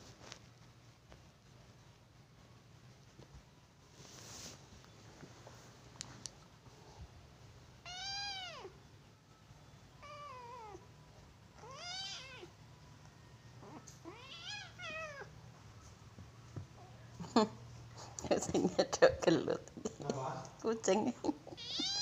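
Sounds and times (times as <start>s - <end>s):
kitten meowing: 7.9s - 8.7s, 11.6s - 12.5s.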